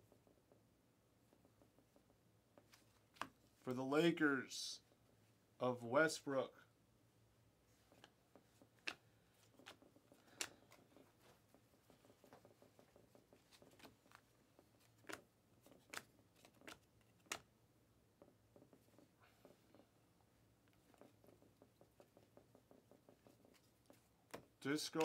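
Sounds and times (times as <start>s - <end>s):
trading cards rustling and clicking: 7.8s - 17.5s, 20.7s - 25.0s.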